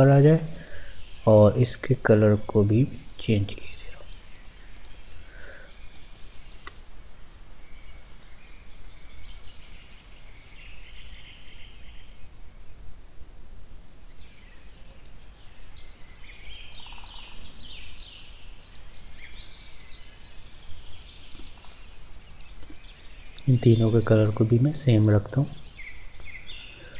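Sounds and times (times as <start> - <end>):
faint bird chirps: 0.2 - 12.9, 13.7 - 26.9
faint clicks: 0.6 - 0.8, 4.3 - 6.8, 8.1 - 8.4, 14.8 - 15.2, 16.4 - 17.2, 18.6 - 19.6, 21.3 - 23.6, 25.5 - 26.9.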